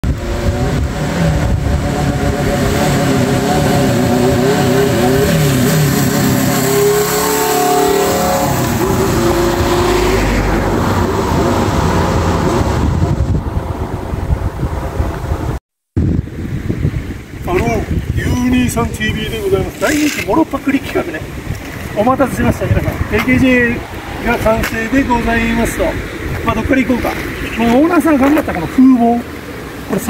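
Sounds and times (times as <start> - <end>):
motorcycle engine revving: 0.0 - 15.6.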